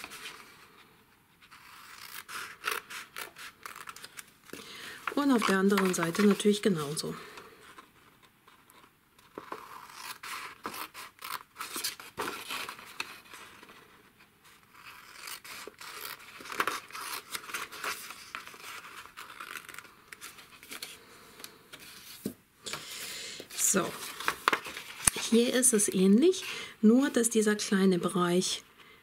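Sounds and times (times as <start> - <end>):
paper rustling: 1.4 - 13.9, 14.5 - 26.4
scissors snipping paper: 5.1 - 7.0, 14.6 - 19.9.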